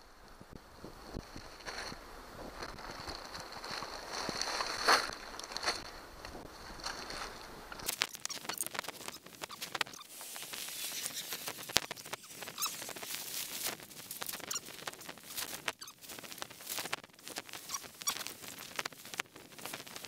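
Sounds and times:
footsteps on loose stone: 1.2s - 10.1s.

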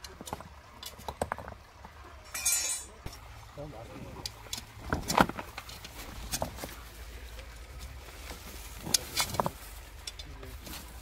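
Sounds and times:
metal hook scraping stones: 2.3s - 3.2s.

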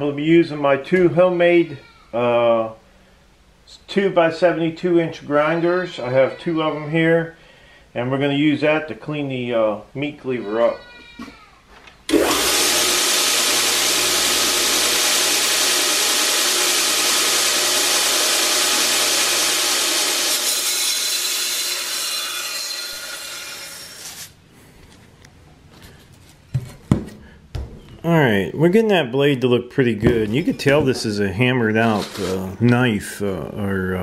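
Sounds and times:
motor humming: 12.1s - 19.6s
belt grinder grinding steel: 12.1s - 24.3s.

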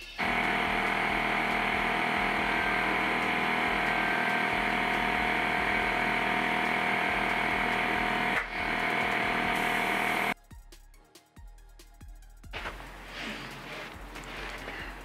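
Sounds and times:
air compressor running: 0.0s - 10.4s.

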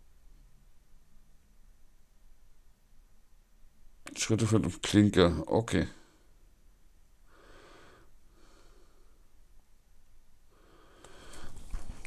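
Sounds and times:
man breathing softly: 7.2s - 9.4s, 10.5s - 12.0s.

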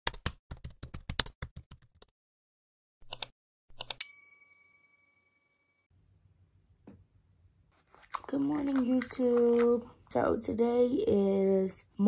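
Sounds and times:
bell-like ding: 4.0s - 5.9s.

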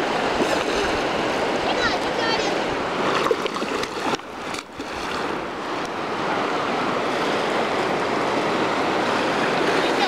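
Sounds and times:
river rushing: 0.0s - 10.0s.

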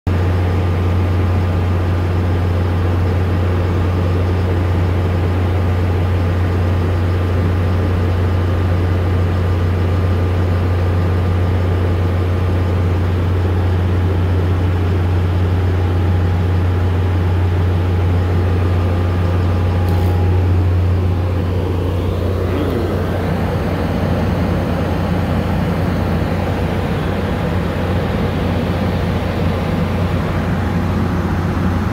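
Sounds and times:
construction equipment engine drone: 0.1s - 31.9s.

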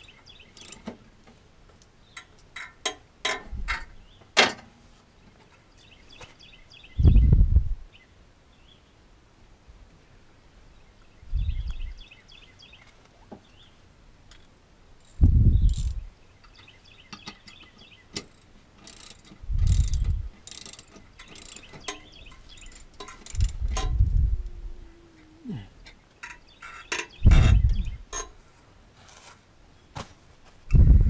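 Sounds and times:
ratchet wrench clicking: 0.0s - 0.9s, 15.0s - 16.0s, 18.2s - 24.0s
low dull thumps: 7.0s - 7.8s, 23.3s - 25.8s
birds chirping faintly: 10.0s - 28.8s.

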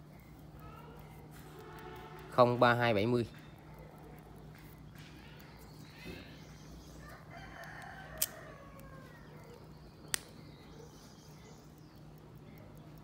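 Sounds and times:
sharp clicks: 3.4s - 13.0s
rooster crowing: 7.0s - 9.2s.

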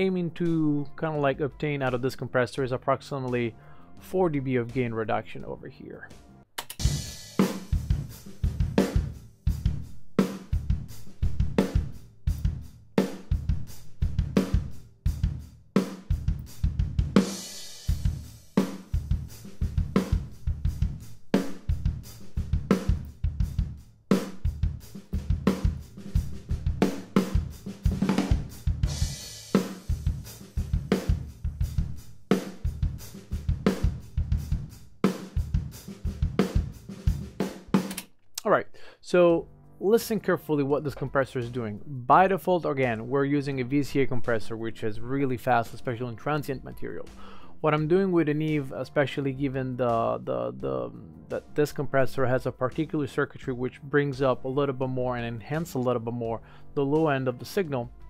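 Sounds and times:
drum kit beat: 3.1s - 38.0s, 40.0s - 58.0s.

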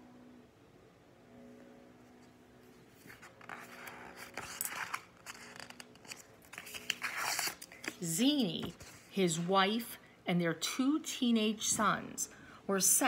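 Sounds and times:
paper page turning: 3.0s - 9.1s.

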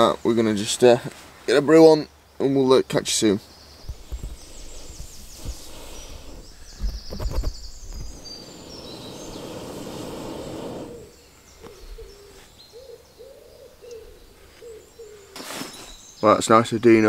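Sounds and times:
birds chirping: 0.0s - 17.0s
low bird call: 3.8s - 16.0s
breath blown through tube: 4.0s - 6.8s, 8.0s - 11.2s.

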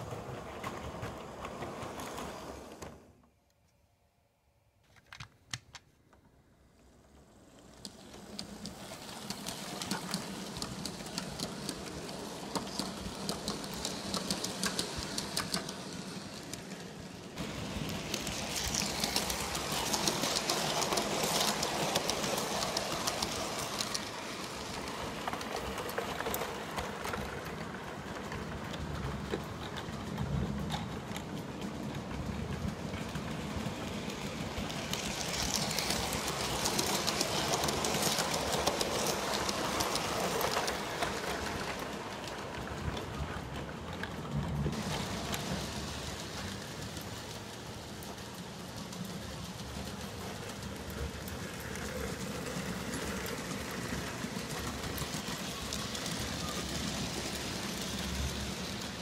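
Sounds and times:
model train wheel clicks: 7.6s - 16.8s.

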